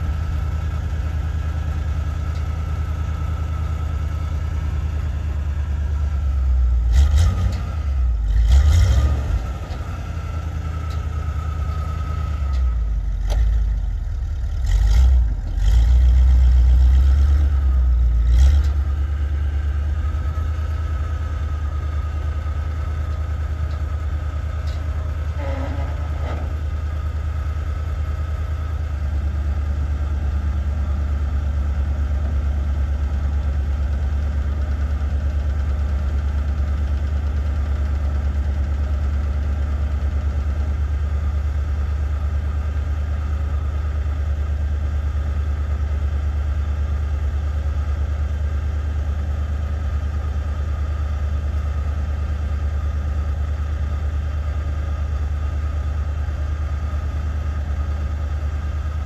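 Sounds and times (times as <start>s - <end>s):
truck engine idling: 0.0s - 8.5s, 9.3s - 59.0s.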